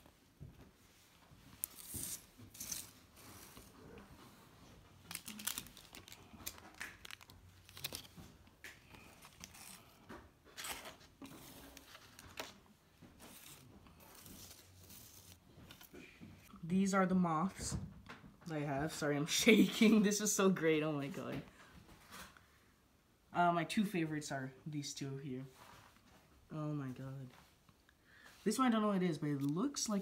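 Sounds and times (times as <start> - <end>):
paper envelopes rustling: 1.5 - 16.1.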